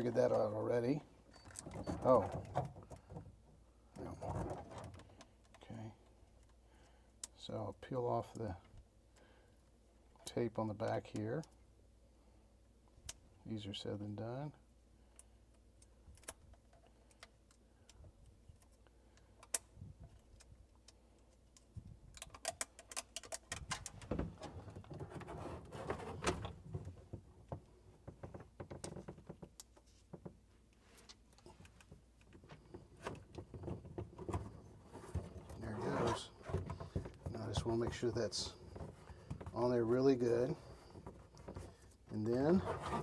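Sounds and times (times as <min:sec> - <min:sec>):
plastic clicks and crackles: 0:15.1 - 0:24.2.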